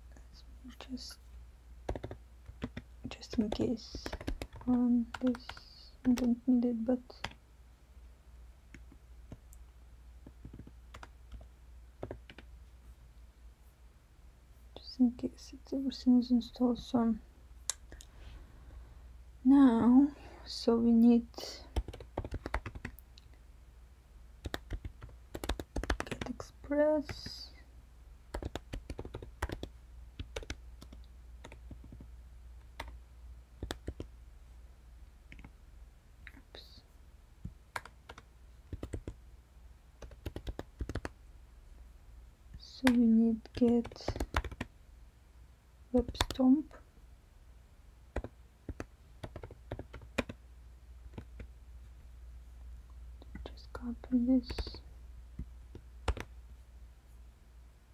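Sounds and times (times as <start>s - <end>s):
low steady hum: 0.0s - 57.9s
computer keyboard typing: 1.8s - 6.4s, 10.3s - 11.4s, 12.0s - 12.5s, 21.7s - 23.0s, 24.4s - 26.4s, 28.3s - 32.1s, 32.7s - 33.0s, 33.6s - 34.1s, 37.7s - 39.2s, 40.0s - 41.2s, 42.8s - 44.7s, 46.0s - 46.5s, 48.1s - 50.4s, 51.1s - 51.5s, 56.0s - 56.3s
keyboard key clicks: 1.9s - 5.4s.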